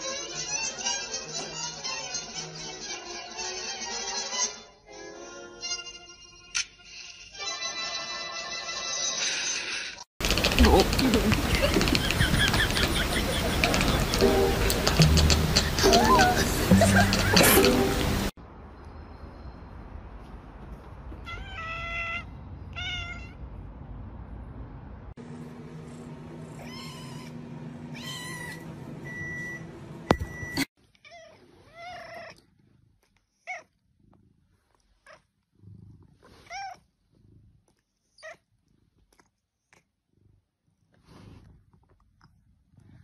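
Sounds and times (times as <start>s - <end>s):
cats meowing: 10.2s - 18.2s, 21.3s - 23.4s, 26.5s - 29.2s, 30.9s - 32.5s, 33.4s - 33.8s, 36.2s - 36.9s.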